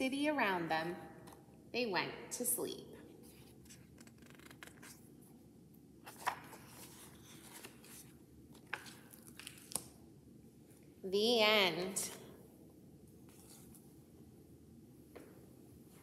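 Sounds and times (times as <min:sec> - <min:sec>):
book pages rustling: 0:03.2 - 0:05.3, 0:06.0 - 0:09.9, 0:13.2 - 0:14.0.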